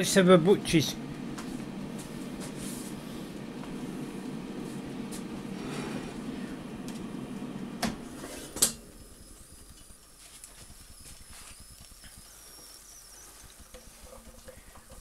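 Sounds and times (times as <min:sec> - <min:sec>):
air fryer fan humming: 0:00.0 - 0:15.0.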